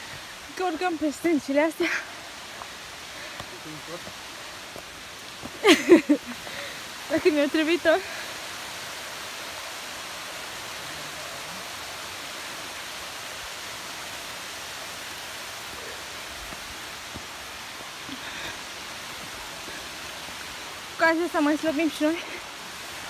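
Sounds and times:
stream rushing over rocks: 0:00.0 - 0:23.0.

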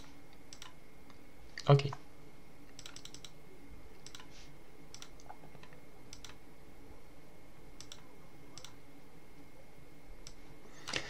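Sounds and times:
computer mouse clicking: 0:00.0 - 0:01.2, 0:02.7 - 0:03.4, 0:04.0 - 0:06.4, 0:07.8 - 0:08.8
faint background hum: 0:00.0 - 0:11.0.

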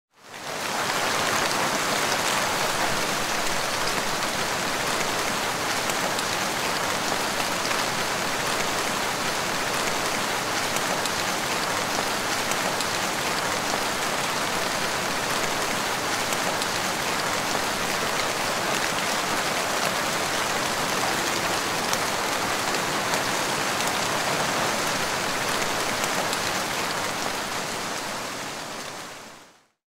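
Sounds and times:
heavy rain falling: 0:00.2 - 0:29.6.

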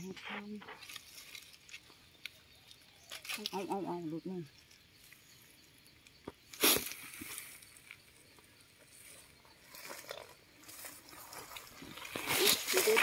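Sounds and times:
dry leaves rustling and crackling: 0:00.6 - 0:03.8, 0:09.7 - 0:13.0.

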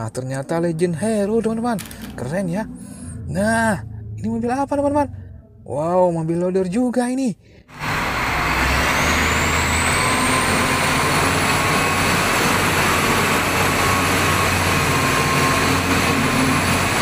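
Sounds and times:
diesel engine droning: 0:00.0 - 0:06.6, 0:07.5 - 0:17.0
high-pitched whine: 0:07.7 - 0:17.0.

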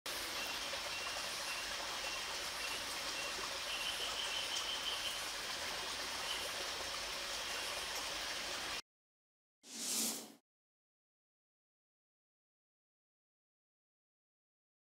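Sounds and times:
whoosh sound effect: 0:09.7 - 0:10.4.

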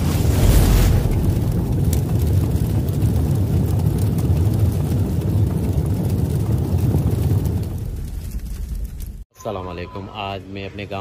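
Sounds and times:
deep rumbling: 0:00.0 - 0:09.3.

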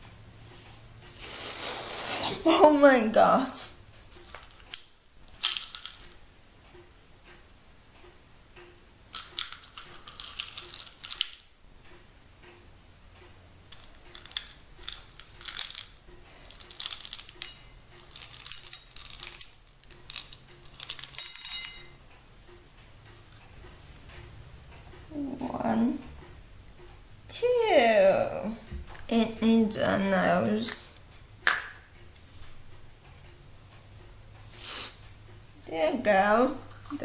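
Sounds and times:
chocolate chips rattling in plastic cup: 0:05.4 - 0:06.1, 0:09.2 - 0:11.5, 0:13.8 - 0:21.7
chips falling onto ceramic plate: 0:18.2 - 0:21.8.

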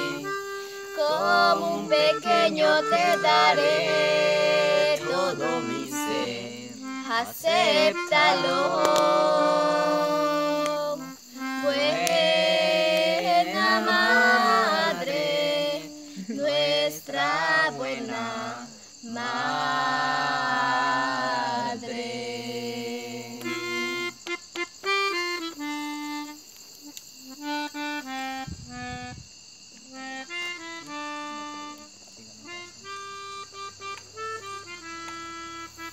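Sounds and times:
voices singing a hymn: 0:00.0 - 0:24.4.

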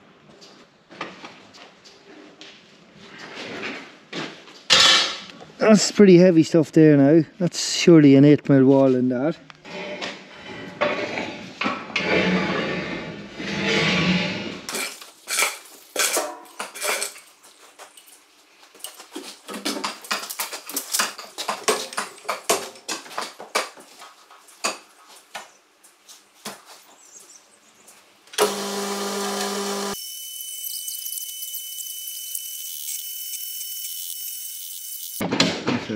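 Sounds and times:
loud steady machine: 0:28.4 - 0:30.0.

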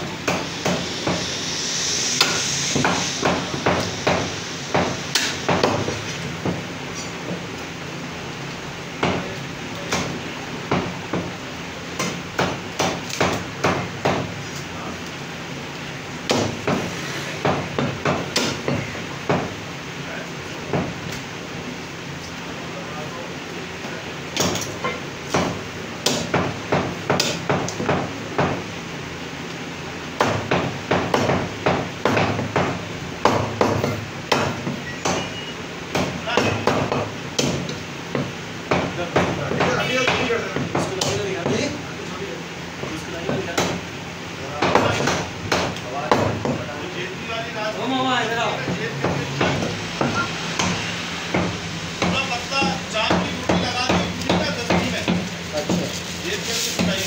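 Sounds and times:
cleaver chopping on wooden block: 0:12.0 - 0:14.3, 0:16.3 - 0:19.5, 0:25.3 - 0:28.6, 0:30.2 - 0:35.3, 0:35.9 - 0:41.6, 0:44.6 - 0:46.6.

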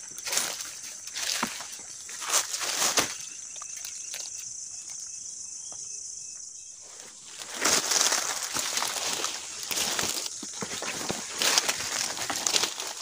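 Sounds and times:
footsteps rustling through leaves: 0:00.0 - 0:03.3, 0:06.8 - 0:13.0
high insect drone: 0:00.0 - 0:13.0.

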